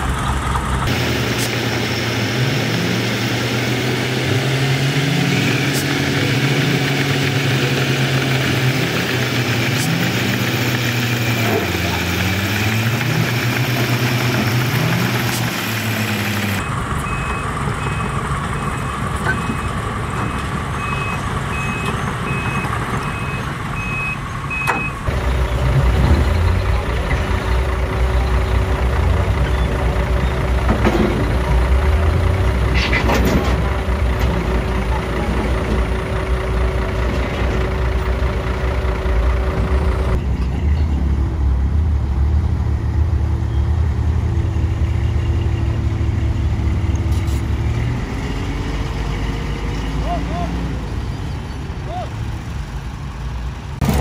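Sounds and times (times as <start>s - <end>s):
engine revving: 0.0s - 51.8s, 53.8s - 54.0s
diesel truck engines: 0.0s - 54.0s
engine idling with whine: 4.4s - 47.9s
reversing alarm beeping: 16.6s - 25.1s.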